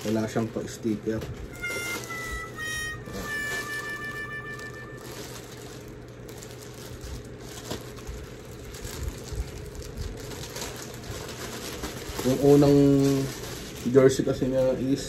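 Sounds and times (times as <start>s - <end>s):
plastic bag rustling and crinkling: 0.0s - 15.0s
steady low hum: 0.0s - 15.0s.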